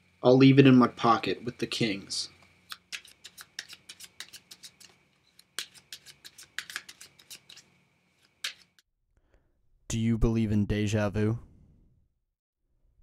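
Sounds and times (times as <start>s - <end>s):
playing cards clicking: 2.7s - 8.8s.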